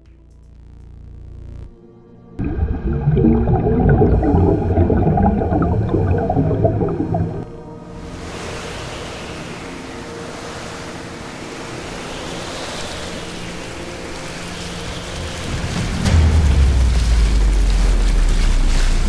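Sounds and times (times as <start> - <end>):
ocean waves washing: 2.4 - 19.0.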